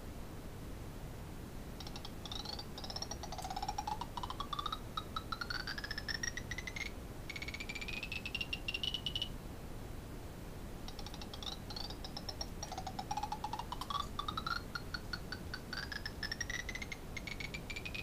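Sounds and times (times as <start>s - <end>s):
fast clicking of gears: 10.9s - 18.0s.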